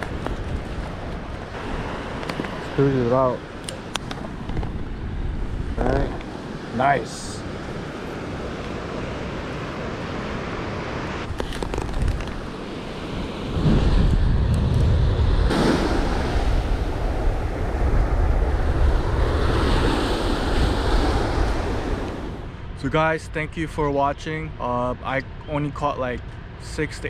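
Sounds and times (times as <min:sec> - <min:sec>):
surf washing up beach: 0:00.0 - 0:04.5, 0:05.4 - 0:22.5
wind rumbling on microphone: 0:00.0 - 0:24.6.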